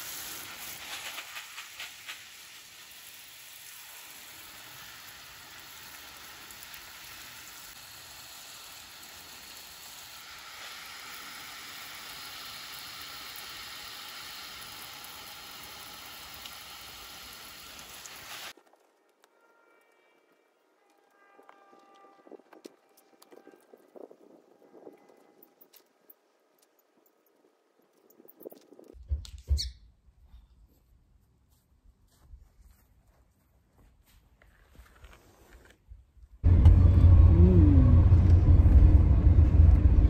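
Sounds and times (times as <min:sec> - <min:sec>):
hose spraying water: 0:00.0 - 0:18.6.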